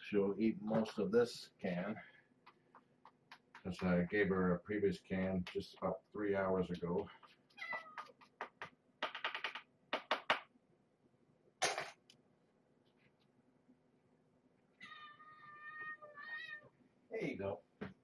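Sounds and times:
cat meowing: 7.6 - 8.1, 14.8 - 16.7.

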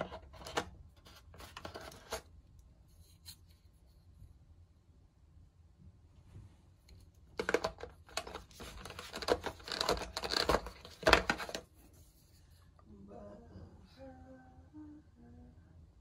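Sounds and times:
packaging crinkling and rustling: 7.4 - 11.6.

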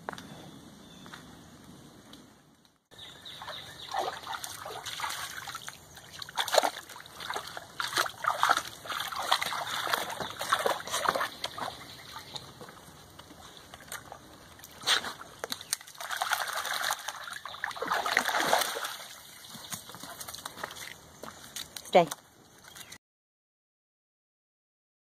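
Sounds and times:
dog splashing and lapping water: 3.4 - 21.0.

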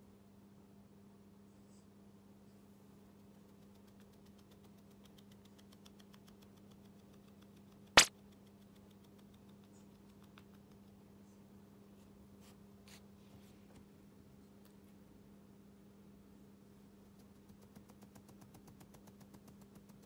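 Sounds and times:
kitten scratching with paw: 3.1 - 11.0, 17.0 - 20.0
sharp click: 8.0 - 8.5.

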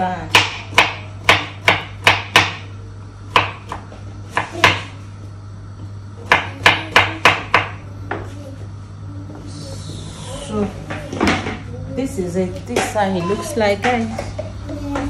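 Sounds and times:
knife chopping on cutting board: 0.3 - 2.7, 3.3 - 5.0.

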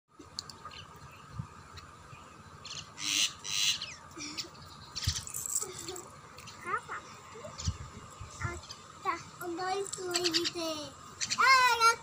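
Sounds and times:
harsh bird squawks: 2.6 - 5.4, 10.1 - 10.6, 11.2 - 11.6.

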